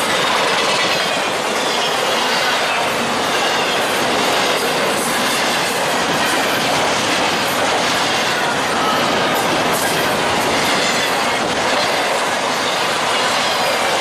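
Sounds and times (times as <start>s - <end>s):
steel wheels rushing on rail: 0.0s - 14.0s.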